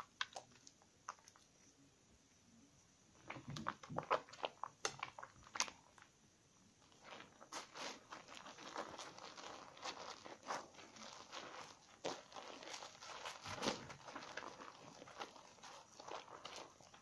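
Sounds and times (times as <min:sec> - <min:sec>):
soap lathering wet squishes: 0:03.2 - 0:06.1, 0:07.0 - 0:17.0
foamy squelching and rubbing: 0:06.8 - 0:17.0.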